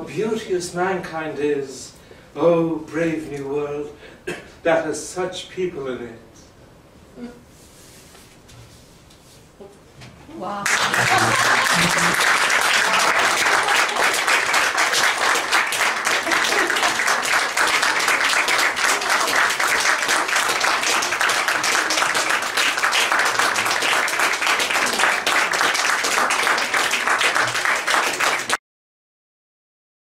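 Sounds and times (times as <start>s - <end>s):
audience applauding: 10.6s - 28.6s.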